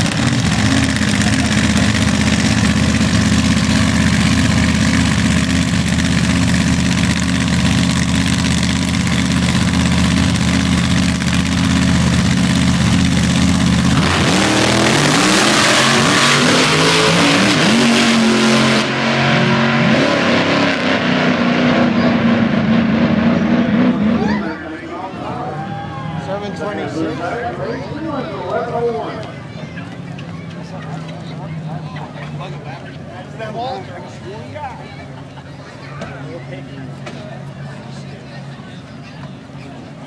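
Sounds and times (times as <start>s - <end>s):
racing cars launching: 0.0s - 27.6s
racing engines idling: 0.0s - 40.0s.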